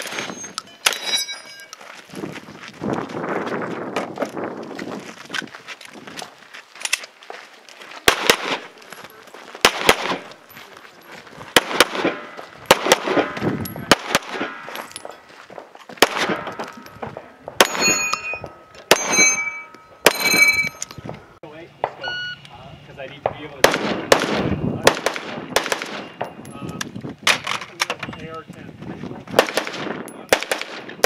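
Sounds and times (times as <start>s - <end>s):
steel plate target clanging: 0.0s - 1.8s, 16.3s - 21.0s.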